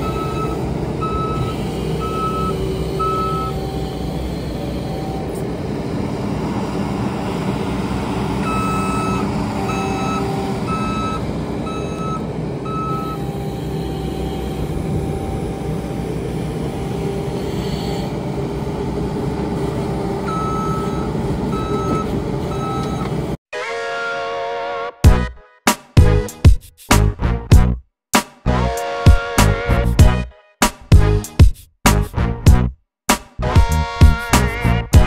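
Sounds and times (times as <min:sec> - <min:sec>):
backup alarm beeping: 0:00.0 - 0:05.5, 0:08.4 - 0:15.7, 0:20.2 - 0:23.2
skid steer running: 0:00.0 - 0:23.4
tractor engine idling: 0:00.0 - 0:23.4.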